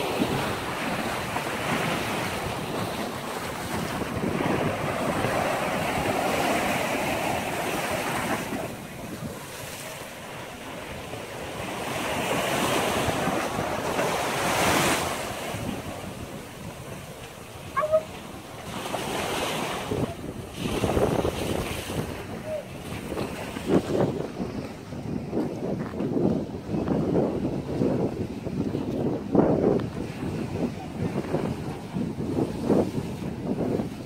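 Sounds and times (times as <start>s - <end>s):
surf breaking against seawall: 0.0s - 26.2s
wind buffeting microphone: 0.0s - 34.0s.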